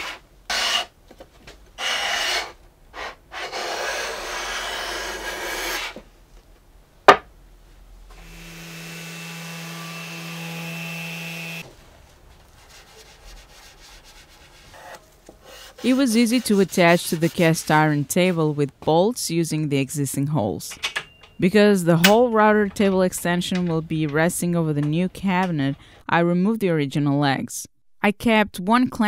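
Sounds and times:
hand plane scraping strokes: 1.8s - 6.0s, 12.6s - 17.8s
faint rubbing: 11.6s - 18.6s.

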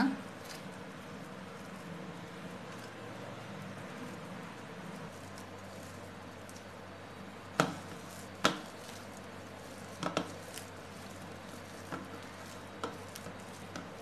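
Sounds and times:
potatoes mashed in metal bowl: 7.5s - 14.0s.

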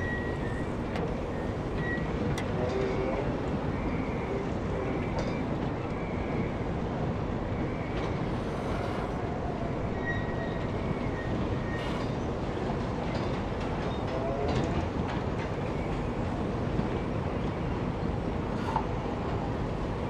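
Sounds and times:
faint high whistles: 0.0s - 2.1s, 9.8s - 12.1s
steam boiler rumbling hiss: 0.0s - 10.0s, 10.6s - 15.1s, 15.8s - 20.0s.

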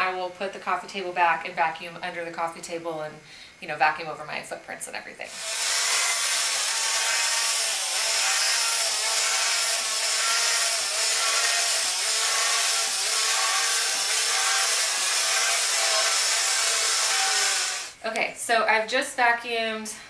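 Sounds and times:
vacuum cleaner motor whine: 5.3s - 18.0s.

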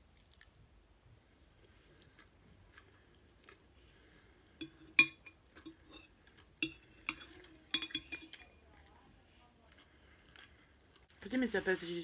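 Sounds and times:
fork clinking on a plate: 4.6s - 8.6s.

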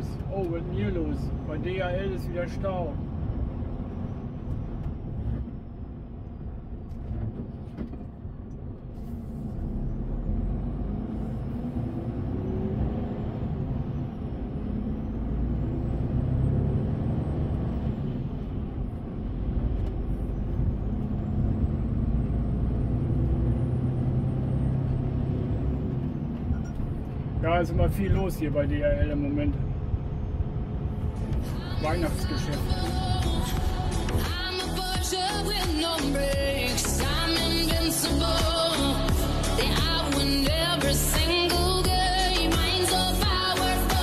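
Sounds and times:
truck diesel engine running: 29.6s - 44.0s.

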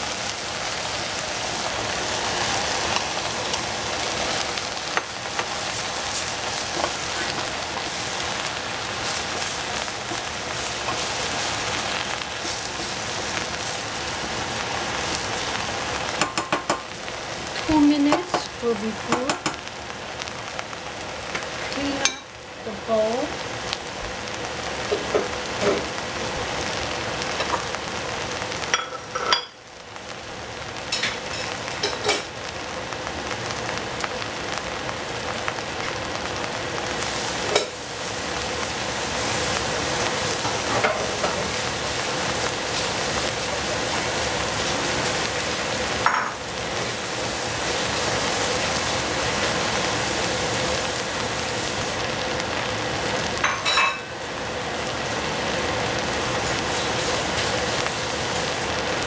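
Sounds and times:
food sizzling in pan: 0.0s - 59.0s.

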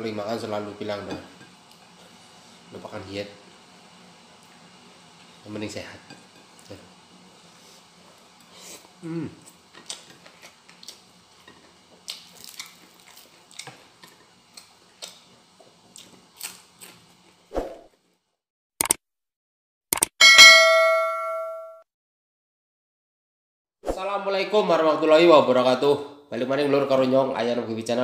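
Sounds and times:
man chewing: 8.4s - 17.4s
sharp clicks: 18.8s - 19.0s, 19.9s - 20.2s
bell ding: 20.2s - 21.8s.

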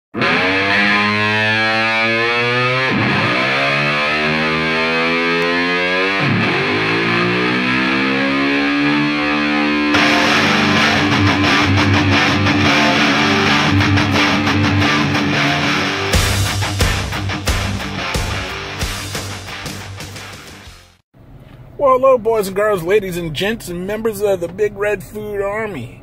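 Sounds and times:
distorted electric guitar chords: 0.1s - 21.0s
drum beat: 16.2s - 20.6s.

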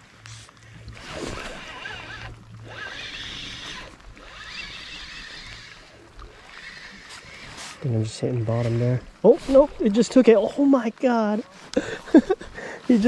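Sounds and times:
fishing reel being cranked: 0.9s - 9.7s.

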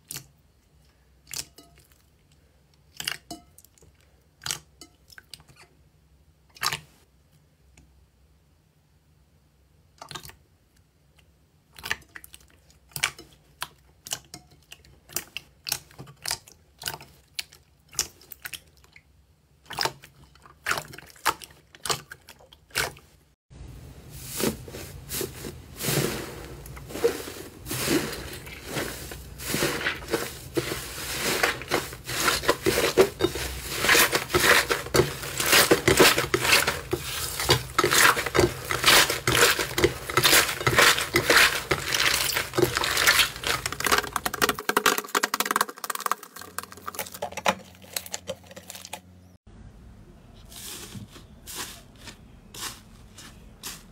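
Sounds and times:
slime crackling and squishing: 24.4s - 49.1s
slime popping and squelching: 26.0s - 49.0s.

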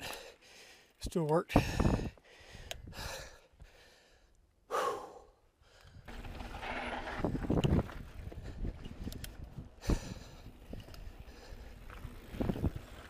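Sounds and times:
rider breathing hard: 0.0s - 7.2s, 8.0s - 12.9s
mountain bike rolling on dirt: 6.0s - 13.0s.

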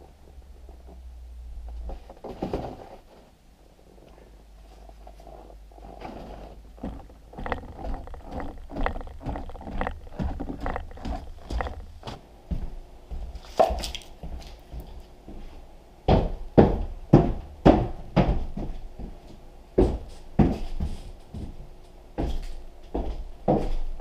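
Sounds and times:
boots on wooden stairs: 6.0s - 21.6s, 22.2s - 23.9s.

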